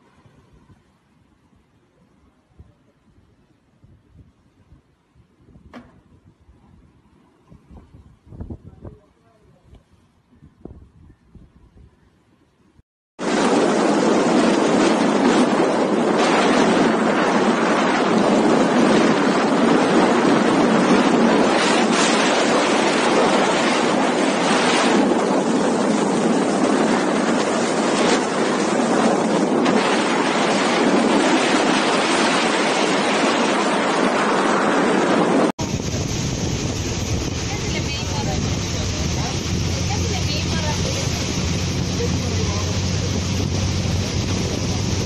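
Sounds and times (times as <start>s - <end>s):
floodwater rushing through sluice gates: 35.6s - 45.0s.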